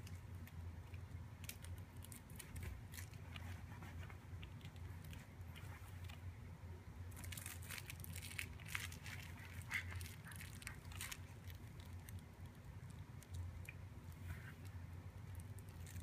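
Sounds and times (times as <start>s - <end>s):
baby toys crinkling and rattling: 1.4s - 3.6s, 7.1s - 13.4s, 15.3s - 16.0s.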